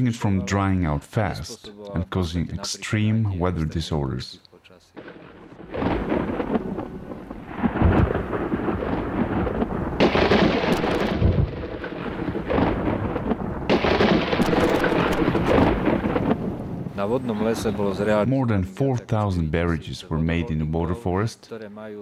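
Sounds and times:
steady hiss of rain: 0.0 - 22.0
rolling thunder: 5.0 - 18.2.

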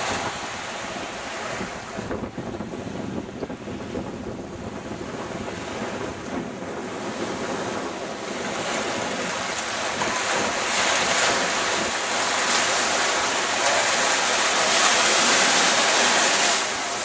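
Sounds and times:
small waves washing on sand: 0.0 - 17.0
wind buffeting microphone: 0.0 - 17.0.

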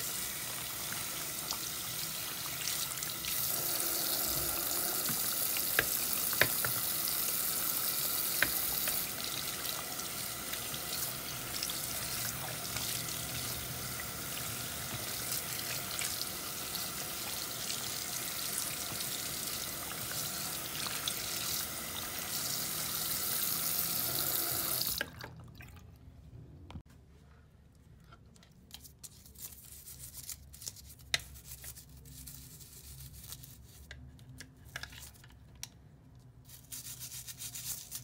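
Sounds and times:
tap water splashing into sink: 4.2 - 7.0, 8.2 - 9.9.

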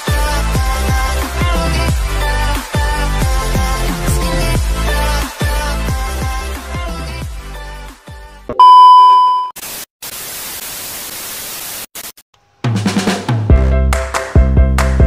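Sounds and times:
background music: 0.0 - 8.5, 12.7 - 15.0
test-tone beep: 8.6 - 9.6
tv static hiss: 9.6 - 12.2.

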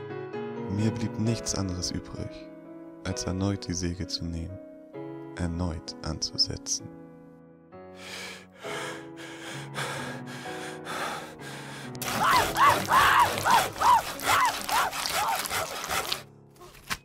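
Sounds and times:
low horror music: 7.9 - 16.9
person screaming: 12.0 - 15.6
saw cutting: 12.0 - 16.3.

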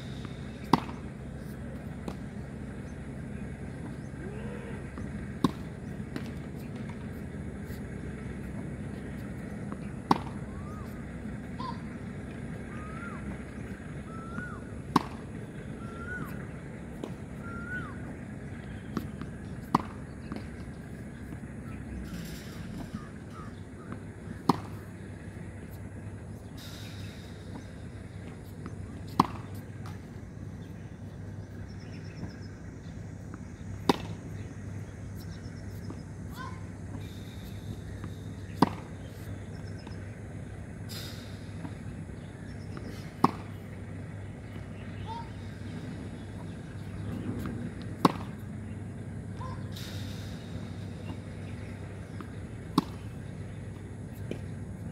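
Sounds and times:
low steady hum: 0.0 - 54.9
tennis racket hitting ball: 0.2 - 2.4, 5.3 - 7.8, 8.5 - 12.0, 12.8 - 17.2, 18.1 - 21.4, 24.4 - 24.9, 29.1 - 30.3, 33.6 - 35.3, 38.0 - 39.3, 41.4 - 43.7, 44.4 - 48.4, 50.6 - 54.4
bird whistling: 12.7 - 13.3, 14.0 - 14.7, 15.7 - 16.4, 17.4 - 18.0, 49.4 - 49.7
tennis ball pops: 33.8 - 34.2, 47.2 - 48.4, 52.1 - 53.1.

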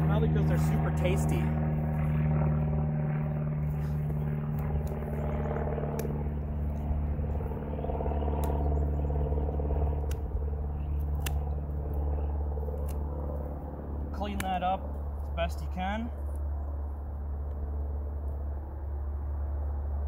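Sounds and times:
steady low hum: 0.0 - 20.0
pruning shears snipping: 3.8 - 7.6, 8.2 - 13.6, 14.2 - 14.8.

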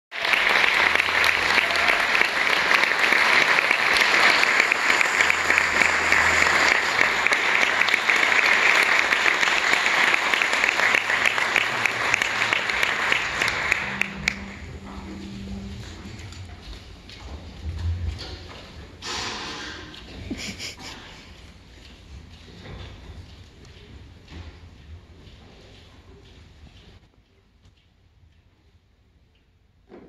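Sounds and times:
audience applauding: 0.1 - 16.3.

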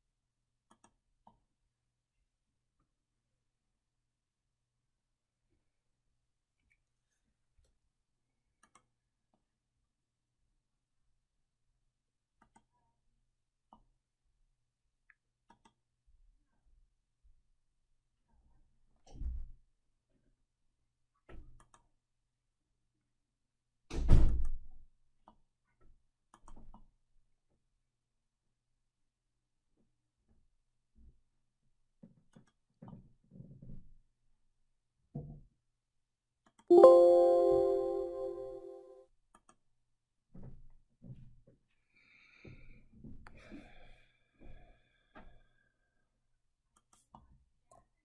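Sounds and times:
plucked guitar-like chime: 36.7 - 38.9.

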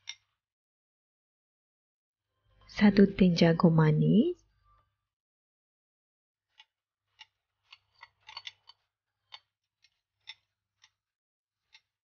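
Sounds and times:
metal spoon scraping ceramic bowl: 7.7 - 9.4.

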